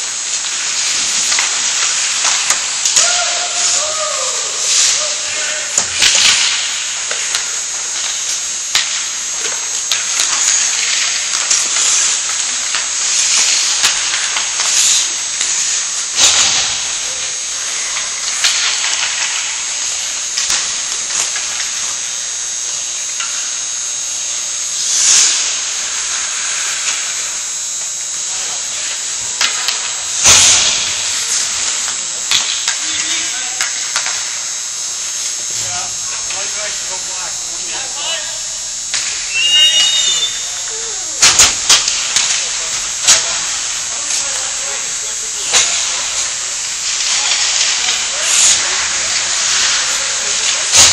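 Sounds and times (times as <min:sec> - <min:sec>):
skate blades scraping on ice: 0:00.0 - 0:07.5, 0:08.7 - 0:19.4, 0:24.8 - 0:27.2, 0:35.5 - 0:50.9
steady high hiss: 0:00.0 - 0:50.9.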